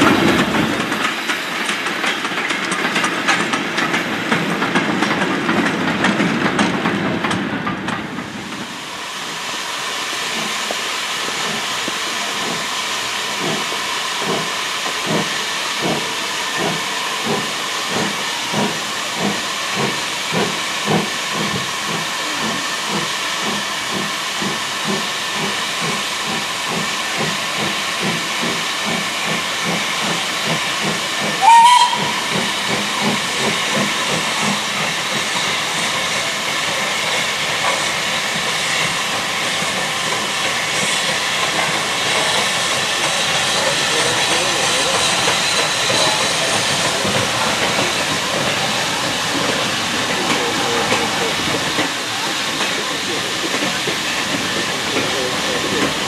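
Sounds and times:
steam locomotive chuffing: 0.0s - 56.0s
steady steam hiss: 8.1s - 56.0s
steam whistle blast: 31.4s - 32.3s.

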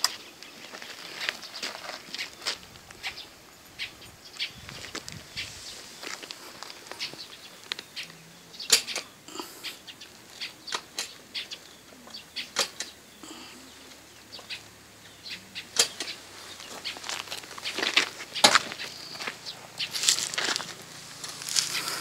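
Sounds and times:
footsteps on gravel: 0.1s - 8.0s, 15.9s - 22.0s.

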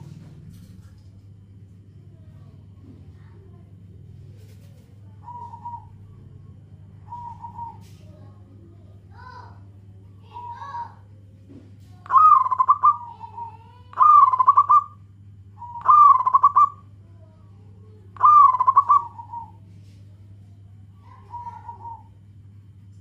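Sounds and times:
steady low hum: 0.0s - 23.0s
dove cooing trill: 4.3s - 8.4s, 10.2s - 11.0s, 12.0s - 15.0s, 15.6s - 16.9s, 18.1s - 19.7s, 21.0s - 22.3s.

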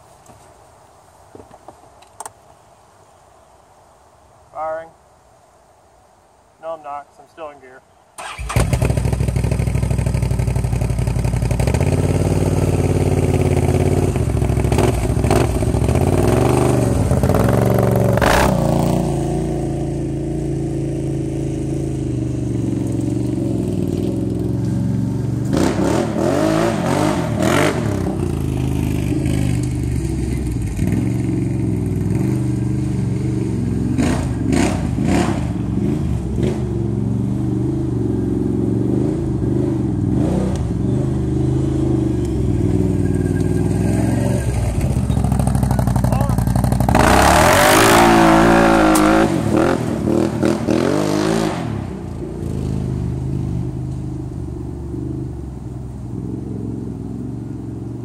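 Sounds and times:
atv engine starting and running: 8.2s - 58.0s
engine throttle blips: 39.2s - 50.7s.

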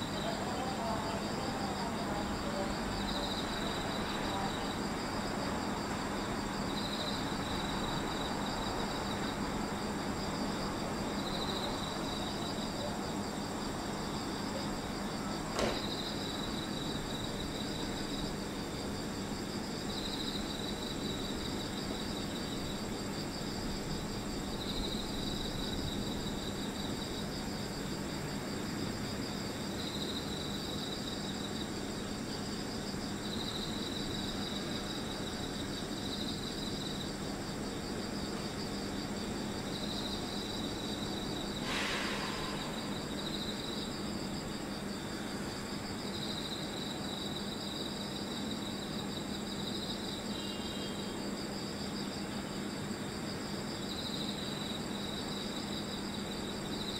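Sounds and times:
insects trilling: 0.0s - 56.9s
sharp click: 15.6s - 15.9s.

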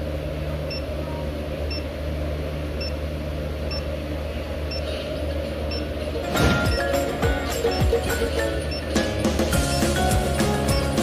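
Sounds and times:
steady low hum: 0.0s - 11.0s
short high-pitched beeps: 10.6s - 11.0s.

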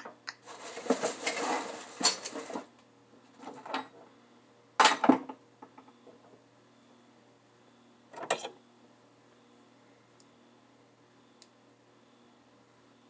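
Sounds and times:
rustling on workbench: 0.4s - 2.7s.

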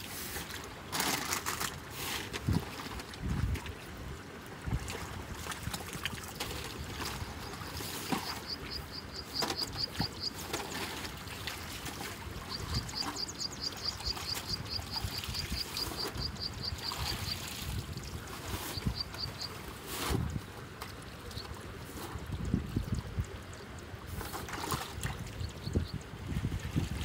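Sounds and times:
water sloshing around wading boots: 0.0s - 22.6s, 24.0s - 25.5s
bird chirping rapidly: 12.5s - 17.3s.

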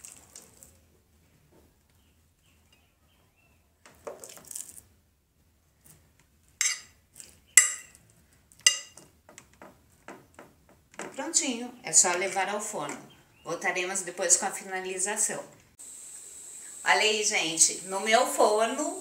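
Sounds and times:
fork clinking on glass dish: 6.6s - 6.9s, 7.6s - 8.0s, 8.7s - 9.0s.

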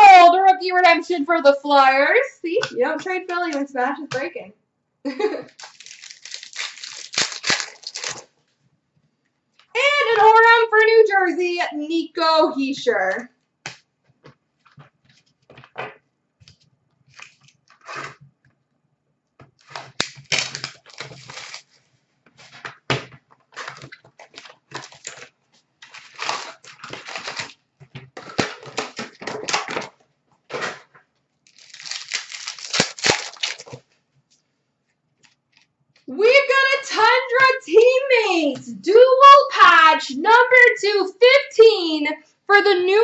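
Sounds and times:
wrappers tearing and crinkling: 5.5s - 8.3s, 17.1s - 18.2s, 19.6s - 21.8s, 23.5s - 27.6s, 28.2s - 30.8s, 31.5s - 33.9s.

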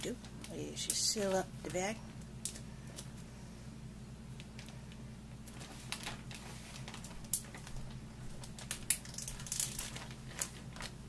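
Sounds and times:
plastic bag crinkling: 4.4s - 11.0s.

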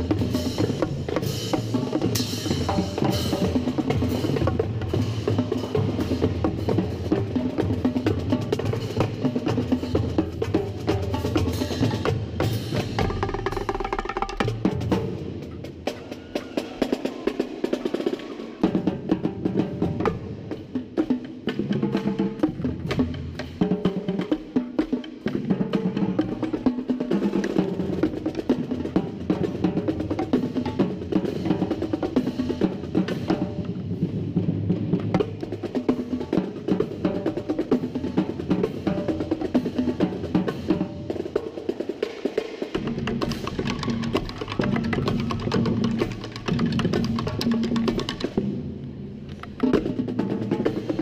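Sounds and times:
snare drum: 0.0s - 51.0s
bass drums: 42.8s - 51.0s.

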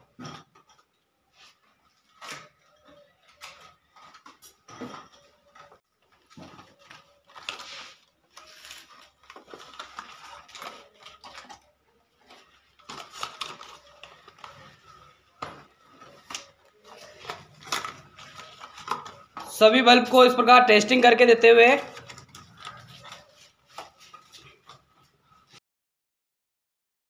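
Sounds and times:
packaging rustling: 1.4s - 25.6s
plastic clicks and clatter: 1.6s - 19.5s, 21.8s - 24.9s.

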